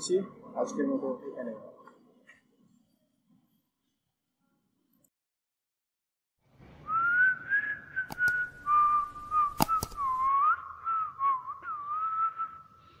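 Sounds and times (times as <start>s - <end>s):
whistled tune: 6.8s - 13.0s
mouse clicks: 8.1s - 8.4s, 9.5s - 10.1s.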